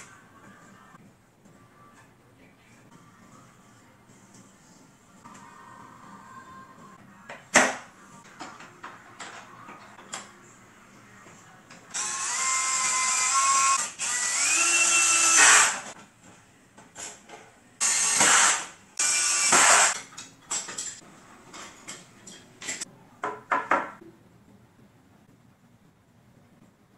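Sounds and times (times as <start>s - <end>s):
cordless drill running into wood: 12.0s - 15.8s.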